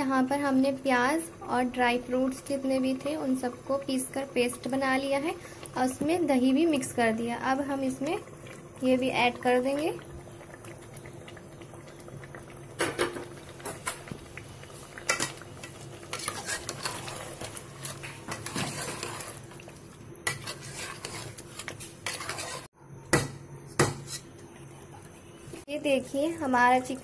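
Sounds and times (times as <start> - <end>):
spoon scraping a metal pot: 16.0 - 19.6, 20.2 - 22.7, 23.8 - 24.3.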